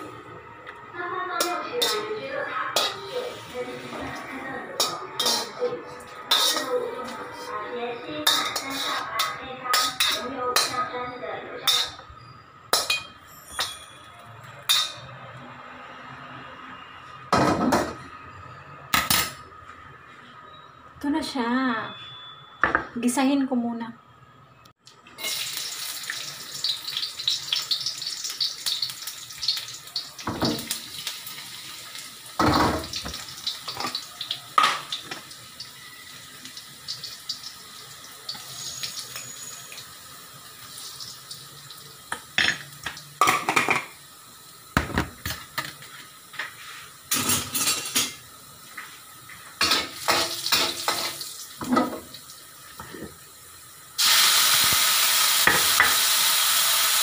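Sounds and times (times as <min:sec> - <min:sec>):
vegetables sizzling in wok: 0:00.0 - 0:13.6, 0:25.1 - 0:57.0
utensils clinking on metal pans: 0:01.4 - 0:11.0, 0:11.6 - 0:12.1, 0:12.7 - 0:15.2, 0:32.4 - 0:36.0, 0:42.1 - 0:44.0, 0:44.8 - 0:48.3, 0:49.2 - 0:52.1
gas stove hiss: 0:45.8 - 0:57.0.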